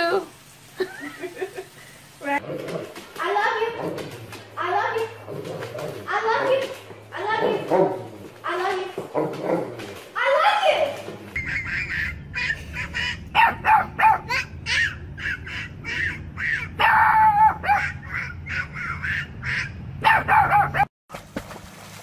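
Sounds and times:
dog barking hoarsely: 11.8 - 20.9.

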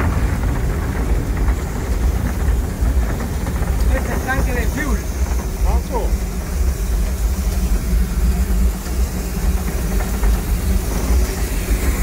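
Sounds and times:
steam hissing: 0.0 - 12.0
steam locomotive rumble: 0.0 - 12.0.

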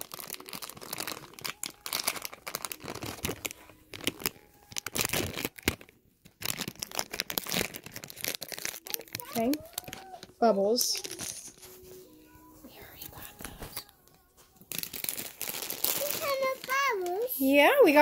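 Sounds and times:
wrapper tearing and crinkling: 0.0 - 11.8, 14.6 - 17.4.

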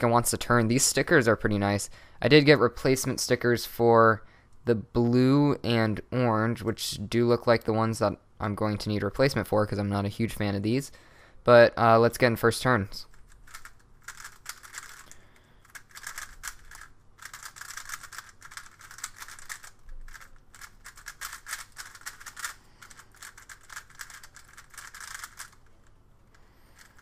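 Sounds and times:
plastic puzzle cube clicking: 13.1 - 27.0.

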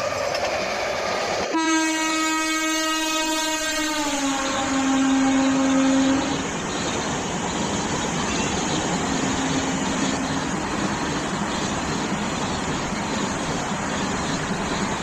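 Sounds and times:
train coaches rushing past: 0.0 - 15.0
train horn: 1.5 - 6.4.

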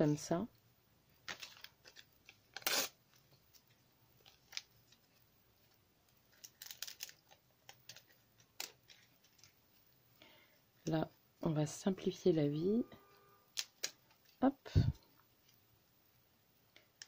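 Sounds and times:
paper rustling and crinkling: 1.2 - 9.8.

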